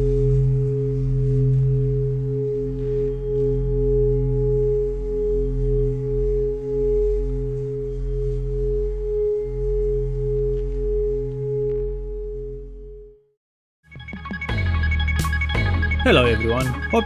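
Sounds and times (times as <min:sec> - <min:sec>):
singing bowl ringing: 0:00.0 - 0:13.3.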